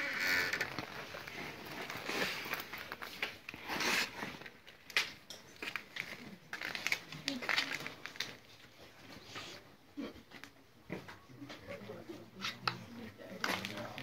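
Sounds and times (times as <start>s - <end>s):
plastic rustling and crinkling: 0.0s - 9.6s, 13.2s - 14.0s.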